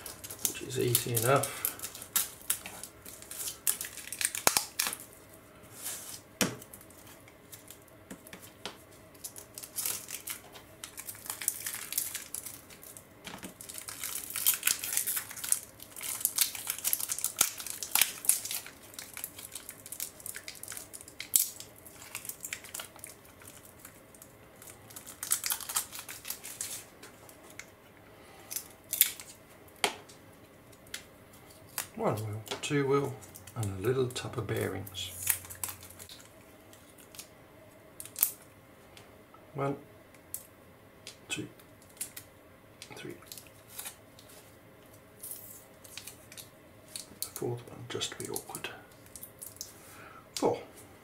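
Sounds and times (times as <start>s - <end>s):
plastic bag crinkling: 0.0s - 27.7s, 33.0s - 37.3s, 43.0s - 44.6s, 45.2s - 47.5s.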